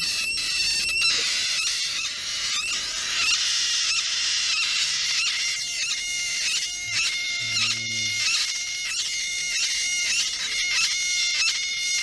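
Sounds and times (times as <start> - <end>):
high chirping animal calls: 0.0 - 12.0.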